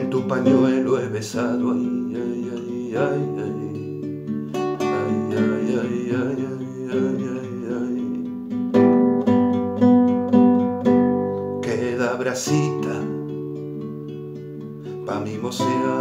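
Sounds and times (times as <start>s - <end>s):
classical guitar strumming chords: 0.0s - 16.0s.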